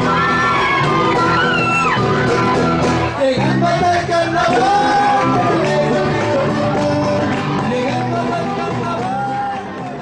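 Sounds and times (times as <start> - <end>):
live band playing latin music: 0.0 - 10.0
person singing long notes: 3.1 - 10.0.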